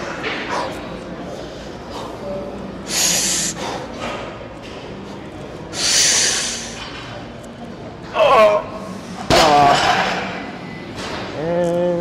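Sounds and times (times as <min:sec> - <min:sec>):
hard noisy breaths: 0:00.4 - 0:04.2, 0:05.0 - 0:06.9.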